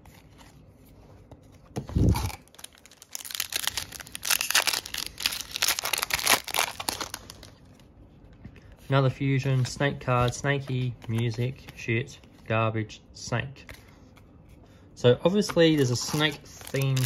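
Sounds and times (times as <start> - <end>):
foil wrapper crinkling and tearing: 2.0 - 7.6, 15.7 - 17.0.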